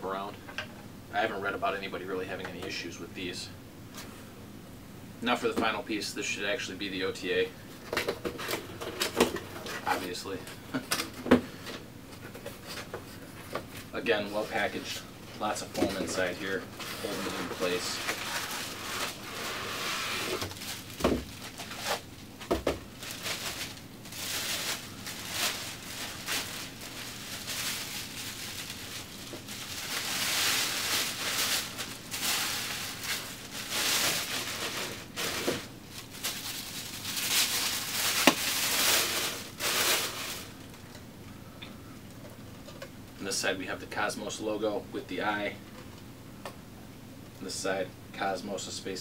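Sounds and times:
plastic and foam crinkling: 0:12.2 - 0:40.9.

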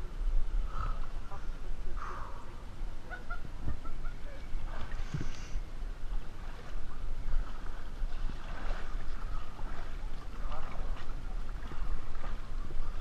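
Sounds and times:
steady low rumble: 0:00.0 - 0:13.0
water lapping against inflatable: 0:04.6 - 0:13.0.

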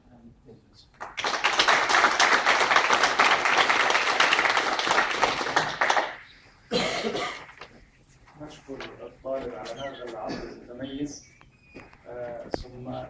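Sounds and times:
audience applauding: 0:01.0 - 0:06.5.

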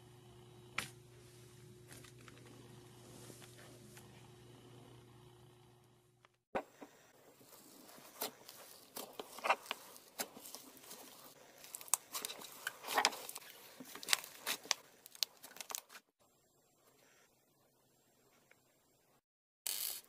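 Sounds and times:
slime clicking and crackling: 0:08.1 - 0:15.9.

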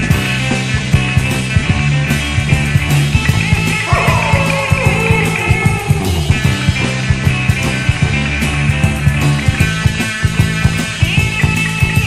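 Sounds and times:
rock band playing: 0:00.0 - 0:12.0
sliding guitar lead line: 0:03.8 - 0:07.5.

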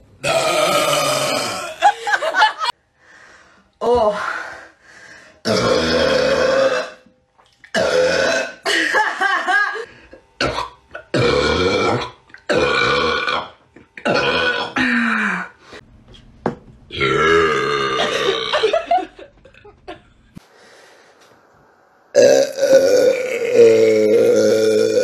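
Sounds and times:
woman belching: 0:00.2 - 0:01.8, 0:05.4 - 0:07.1, 0:07.7 - 0:08.7, 0:10.4 - 0:15.5, 0:16.9 - 0:18.8, 0:22.2 - 0:25.0.

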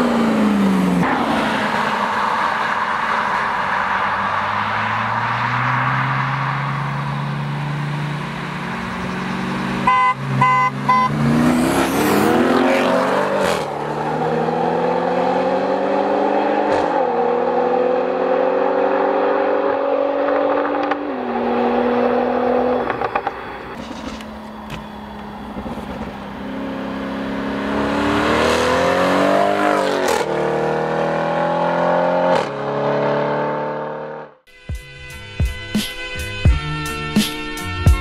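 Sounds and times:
cars accelerating hard: 0:00.0 - 0:34.4
car horn toots: 0:09.8 - 0:11.2.

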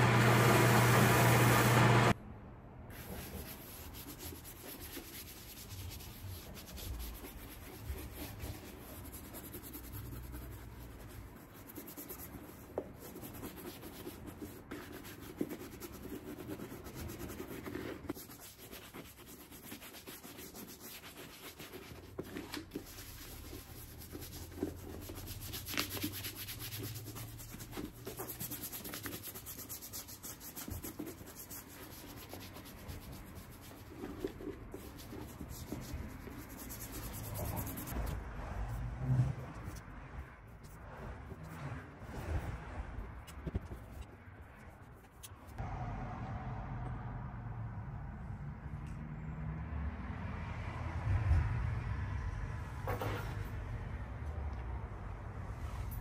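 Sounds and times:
rubbing and scraping on a boot: 0:02.9 - 0:38.2, 0:40.5 - 0:45.6.

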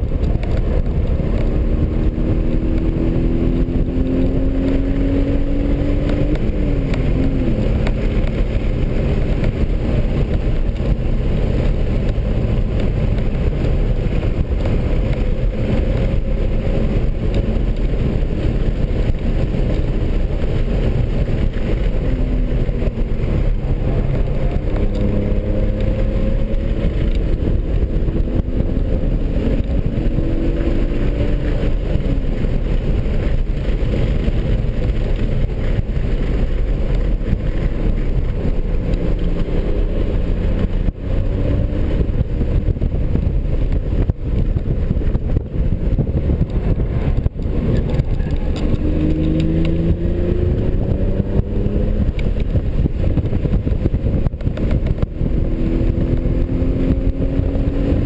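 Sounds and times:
car engine accelerating: 0:00.0 - 0:58.0
road and wind rumble: 0:00.0 - 0:58.0.

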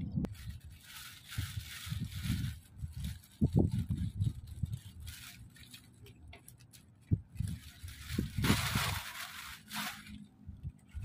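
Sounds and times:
plastic bags crinkling: 0:00.3 - 0:11.0.

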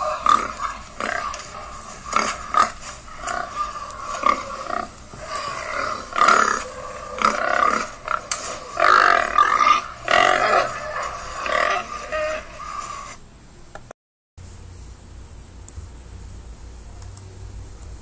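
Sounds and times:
pigs grunting: 0:00.0 - 0:13.2.

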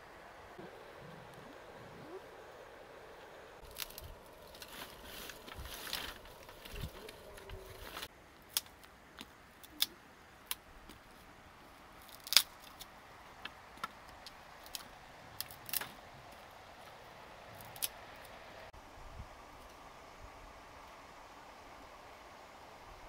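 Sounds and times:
dry sticks clicking together: 0:08.5 - 0:11.0, 0:12.1 - 0:16.0.

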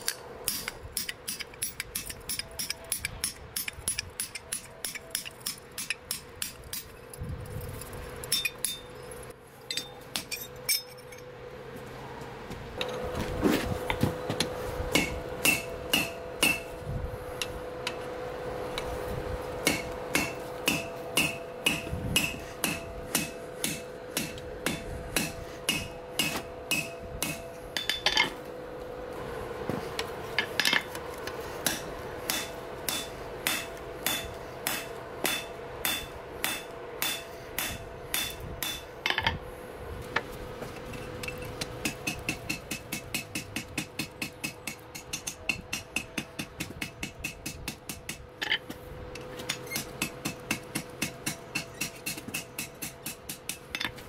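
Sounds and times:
hammer striking steel on anvil: 0:00.0 - 0:07.0, 0:08.3 - 0:09.0, 0:09.7 - 0:11.2, 0:14.9 - 0:16.8, 0:19.6 - 0:28.4, 0:31.6 - 0:39.4, 0:41.0 - 0:48.8, 0:49.5 - 0:54.0
steady hum: 0:00.0 - 0:54.0.

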